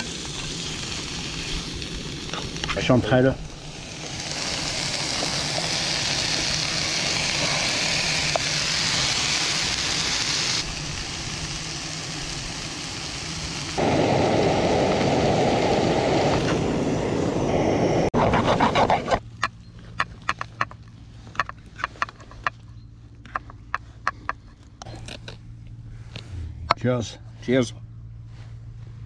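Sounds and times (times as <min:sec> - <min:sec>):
food sizzling in a pan: 0:00.0 - 0:16.5
deep rushing noise: 0:13.8 - 0:18.2.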